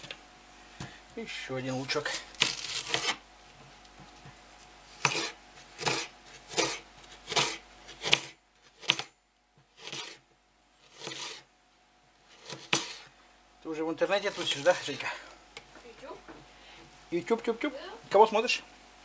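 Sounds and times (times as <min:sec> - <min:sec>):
knife slicing onion on board: 0:02.1 - 0:03.2, 0:05.0 - 0:09.1, 0:09.7 - 0:10.2, 0:10.8 - 0:11.4, 0:12.3 - 0:13.1.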